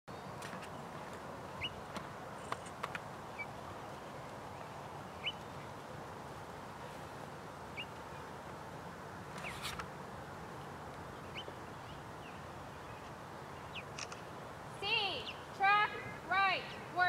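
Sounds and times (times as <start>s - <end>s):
small bird chirping: 1.5s - 1.8s, 3.3s - 5.7s, 11.2s - 14.2s.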